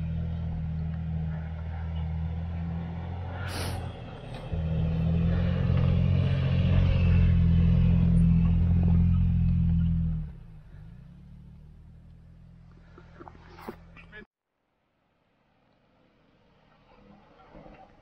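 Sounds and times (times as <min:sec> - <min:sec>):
pickup truck engine running: 0:00.0 - 0:14.2.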